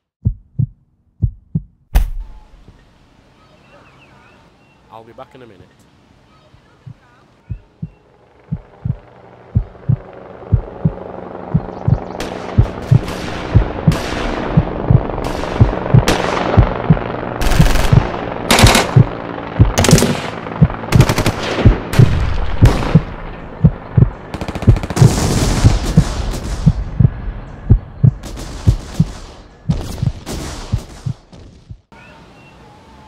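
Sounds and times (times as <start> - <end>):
low heartbeat thump: 0.2 - 2.4, 6.9 - 17.1, 17.8 - 18.2, 18.9 - 19.8, 20.6 - 20.8, 21.6 - 24.8, 25.6 - 31.9
machine-gun fire: 12.2 - 23.4, 24.3 - 27.0, 28.2 - 31.6
single gunshots: 19.8 - 20.4.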